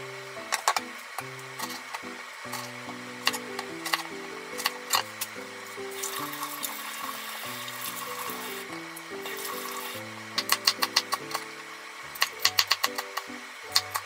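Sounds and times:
light background music: 0.0 - 14.0
water running from tap: 4.6 - 11.4.

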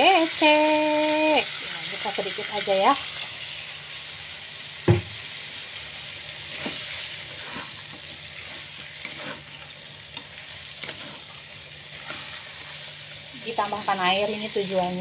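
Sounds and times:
chicken sizzling in a wok: 0.0 - 15.0
loud knock: 4.9 - 5.1
plastic spatula scraping pan: 8.5 - 9.5.

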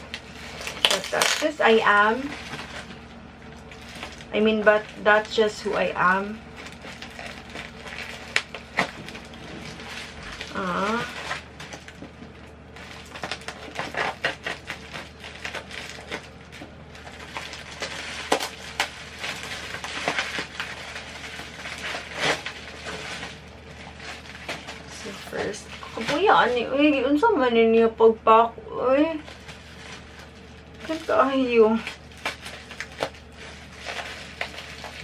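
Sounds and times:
plastic packaging crinkling: 0.0 - 27.2, 29.0 - 35.0
woman humming: 10.4 - 11.2.

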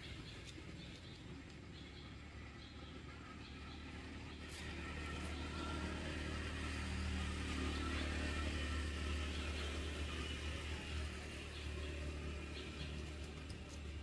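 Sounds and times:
vehicle engine humming: 0.0 - 14.0.

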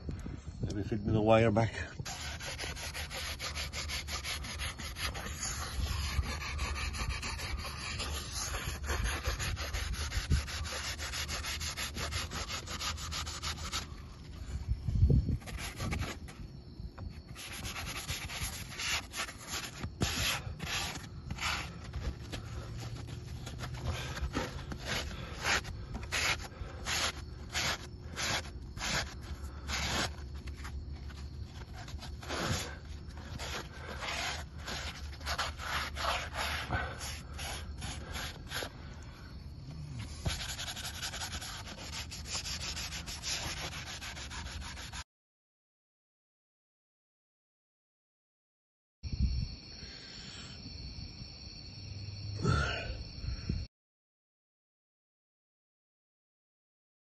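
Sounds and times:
hand sanding fibreglass: 2.0 - 14.0, 15.4 - 16.4, 17.2 - 38.7, 40.2 - 45.0.

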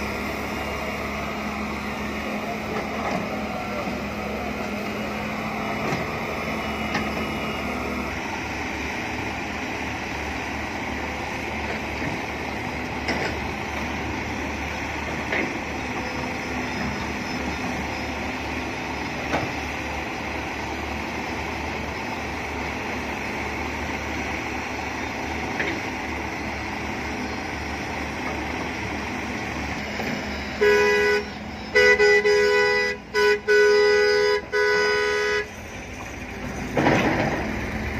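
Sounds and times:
excavator diesel engine running: 0.0 - 37.9
vehicle horn blasts: 30.4 - 35.6.

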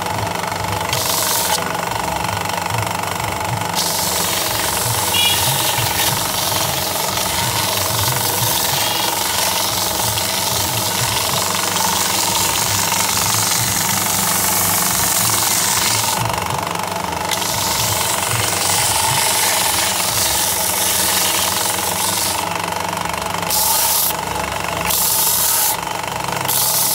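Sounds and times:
belt sander motor humming: 0.0 - 26.9
wood sanding hiss: 3.8 - 16.2, 17.3 - 22.4, 24.9 - 25.8.

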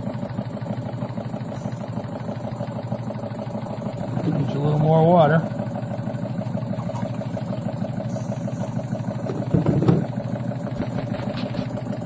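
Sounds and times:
model steam engine running: 0.0 - 12.0.

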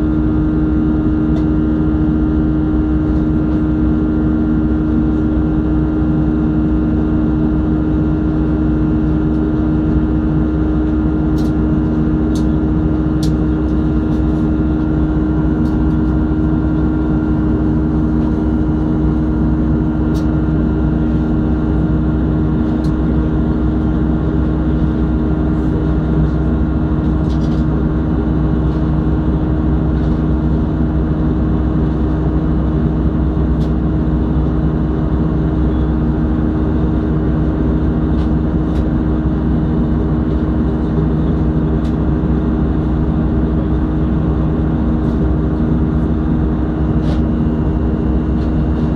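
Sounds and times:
airplane cabin drone: 0.0 - 48.9.

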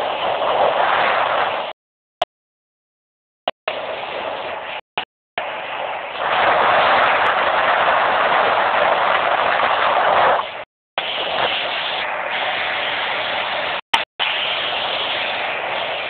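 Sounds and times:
wind and water rushing: 0.0 - 1.8, 3.7 - 4.8, 5.4 - 16.0.

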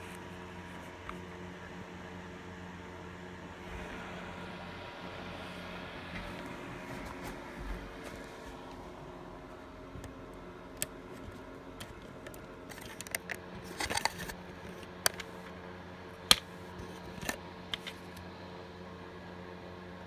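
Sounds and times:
faint hum: 0.0 - 20.0
crackly scrape: 11.1 - 15.5
plastic case clicking and rattling: 11.8 - 15.4.

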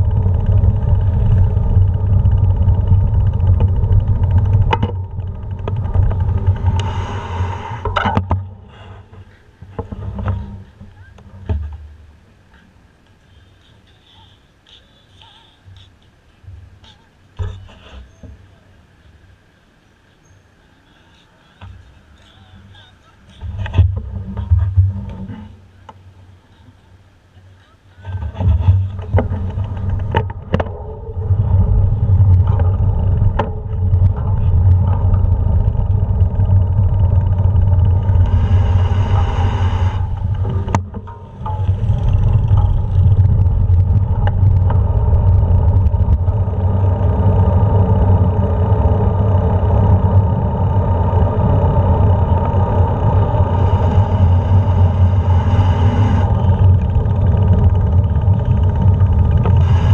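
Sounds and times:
wind buffeting microphone: 0.0 - 10.7, 28.1 - 59.9
bike road noise rumbling: 0.0 - 59.9.

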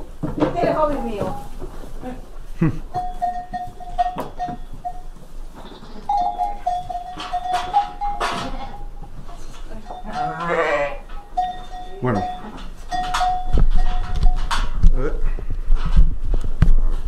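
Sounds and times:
animals knocking about: 2.9 - 15.0
sheep bleating: 10.1 - 11.1.

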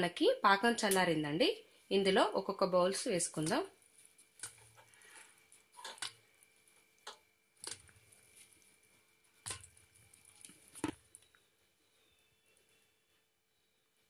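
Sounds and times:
balls plopping into syrup: 9.4 - 11.3.

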